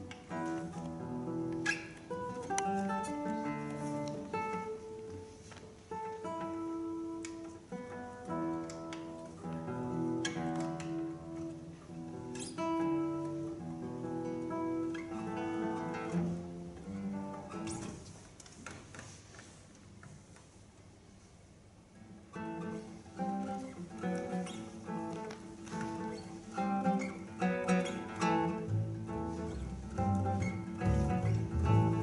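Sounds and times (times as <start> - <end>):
plucked string trio playing folk tune: 22.6 - 32.0.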